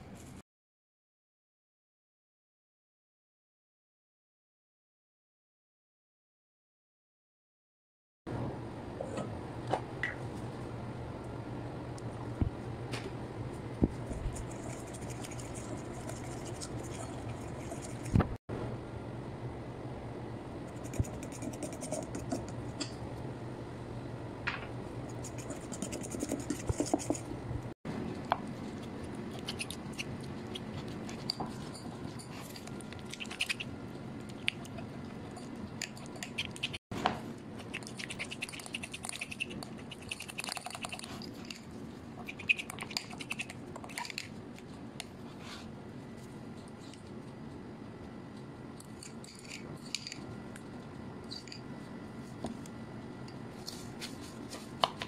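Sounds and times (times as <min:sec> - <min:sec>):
fork mashing cream cheese: 0:13.9 - 0:18.2, 0:20.7 - 0:23.0, 0:25.0 - 0:27.3, 0:28.2 - 0:36.8, 0:37.4 - 0:45.7, 0:48.8 - 0:52.7.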